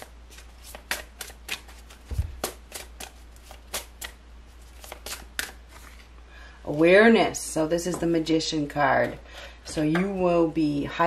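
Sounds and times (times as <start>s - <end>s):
cards being shuffled: 0.0s - 6.1s.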